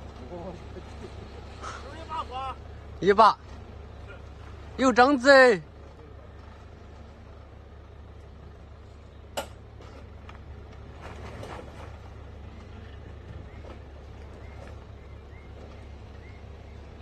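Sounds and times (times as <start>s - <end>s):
engine idling low rumble: 0.0s - 17.0s.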